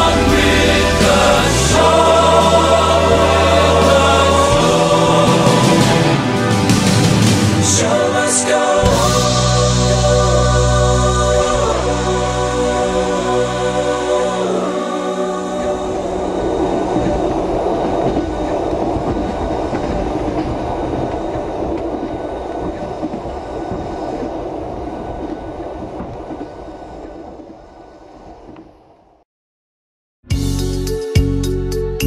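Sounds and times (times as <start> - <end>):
music: 0.0 - 17.3, 30.2 - 32.0.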